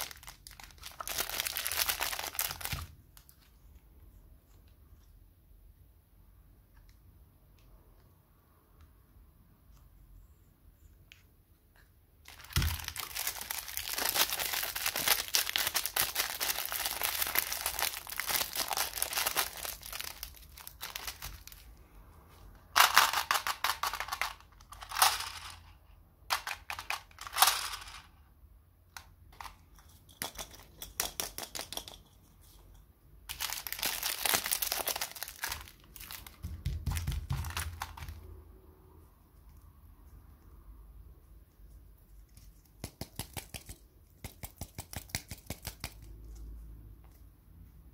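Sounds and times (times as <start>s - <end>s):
plastic wrappers crinkling: 0.0s - 3.5s, 12.2s - 21.8s, 33.3s - 38.2s.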